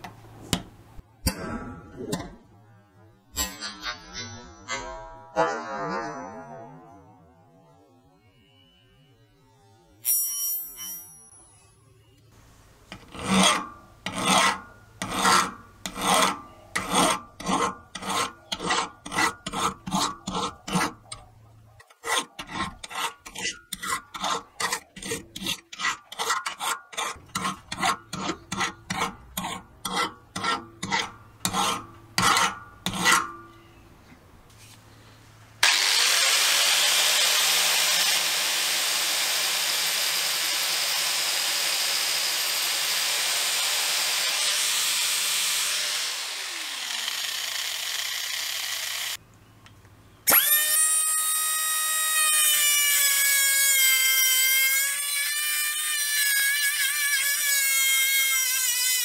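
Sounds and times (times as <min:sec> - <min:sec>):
file rasping on metal: 0:12.9 - 0:33.4
angle grinder grinding metal: 0:12.9 - 0:33.6, 0:35.6 - 0:49.2, 0:50.3 - 0:59.0.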